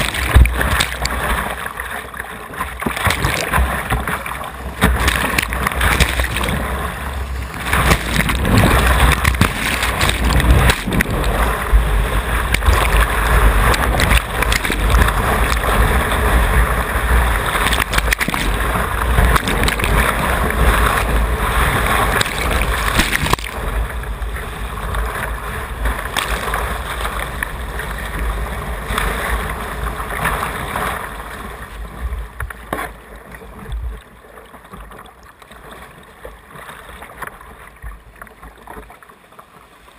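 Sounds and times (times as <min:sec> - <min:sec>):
whitewater rushing: 0:00.0 - 0:31.0
wind buffeting microphone: 0:04.6 - 0:26.8
water splashing over deck: 0:07.6 - 0:11.5, 0:17.5 - 0:23.7.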